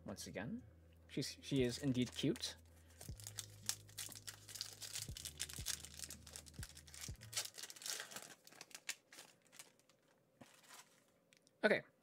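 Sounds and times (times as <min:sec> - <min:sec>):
foil wrapper crinkling and tearing: 0:01.6 - 0:11.1.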